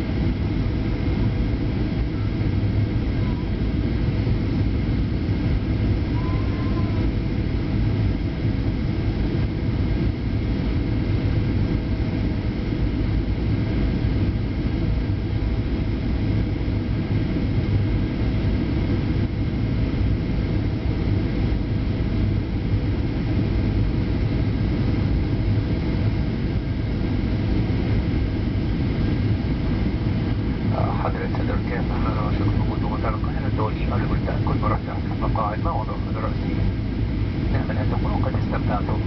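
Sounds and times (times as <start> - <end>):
airliner cabin roar: 0.0 - 39.0.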